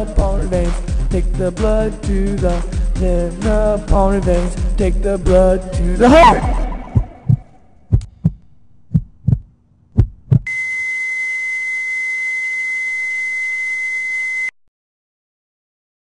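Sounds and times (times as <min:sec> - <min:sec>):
heartbeat thumps: 0:02.1 - 0:10.5
heart monitor flatline tone: 0:06.1 - 0:07.5.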